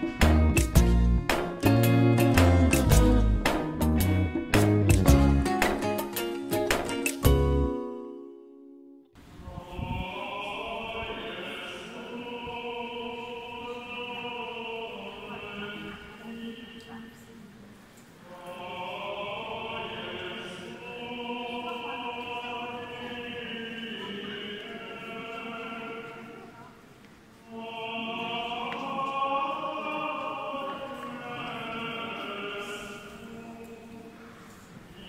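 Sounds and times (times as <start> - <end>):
voices singing chant: 9.4 - 17.2, 18.2 - 26.8, 27.4 - 35.0.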